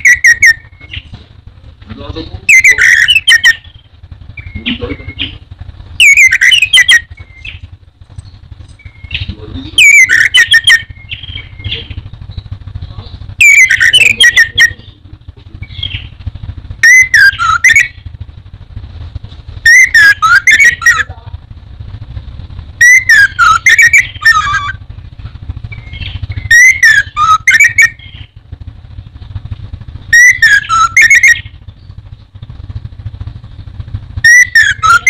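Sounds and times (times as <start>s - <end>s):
low steady hum: 0.0s - 35.0s
thrush singing: 9.8s - 12.6s, 13.4s - 14.9s, 16.8s - 18.1s, 19.6s - 21.2s, 22.8s - 24.8s, 25.6s - 28.3s, 30.1s - 31.6s, 34.2s - 35.0s.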